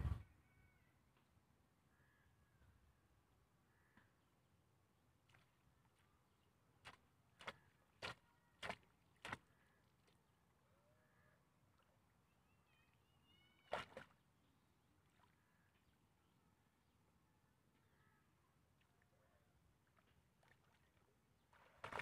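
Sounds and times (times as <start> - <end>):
splashes in shallow water: 6.8 - 10.2, 13.6 - 14.2, 19.8 - 22.0.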